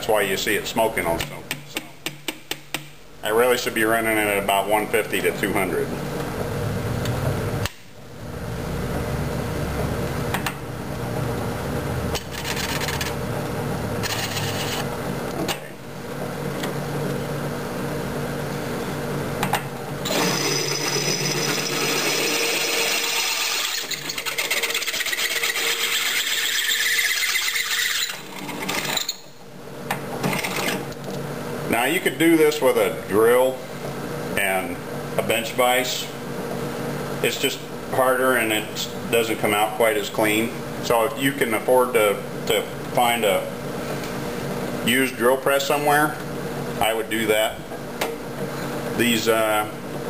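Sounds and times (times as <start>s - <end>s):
drill press motor humming: 20.0s - 29.0s
drill bit squealing into steel: 20.1s - 29.3s.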